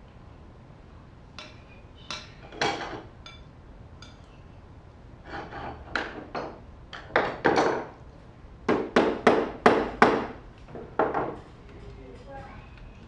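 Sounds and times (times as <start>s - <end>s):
hand tool striking wood: 8.7s - 10.4s.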